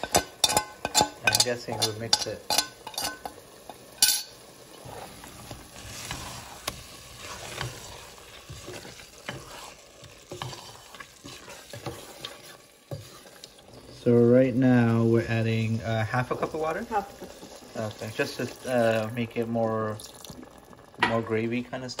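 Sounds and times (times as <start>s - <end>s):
wooden spoon scraping pot: 0.0s - 17.4s
chicken sizzling in a pot: 0.0s - 22.0s.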